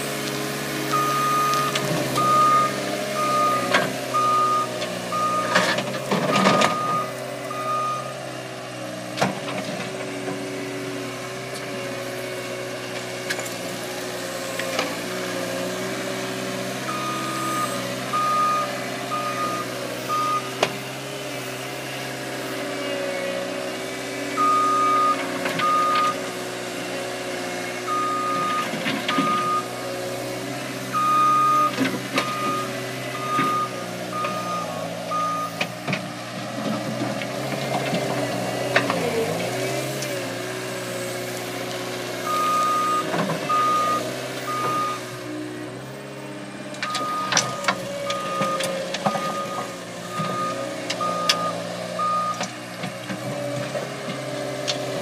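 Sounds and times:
diesel engine running: 0:00.0 - 0:55.0
reverse alarm beeping: 0:00.9 - 0:05.6, 0:06.3 - 0:08.2, 0:16.9 - 0:20.6, 0:24.4 - 0:26.2, 0:27.9 - 0:29.7, 0:30.9 - 0:35.6, 0:42.3 - 0:45.1, 0:46.9 - 0:52.4.

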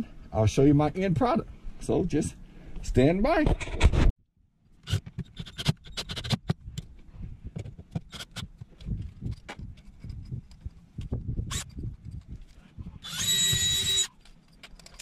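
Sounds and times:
screws and drill clicking: 0:04.9 - 0:06.5, 0:11.5 - 0:12.3, 0:13.0 - 0:15.0.

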